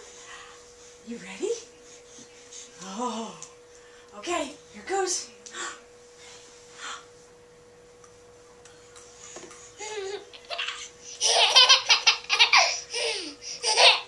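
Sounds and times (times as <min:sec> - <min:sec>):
faint steady hum: 0:00.0 - 0:14.0
toddler laughing: 0:09.8 - 0:14.0.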